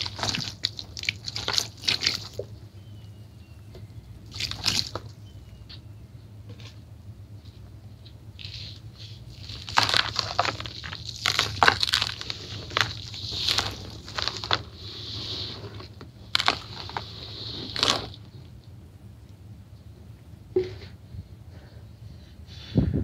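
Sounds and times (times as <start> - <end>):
powder poured with crunchy crackles: 0.0 - 2.6, 4.2 - 5.2, 8.3 - 18.4.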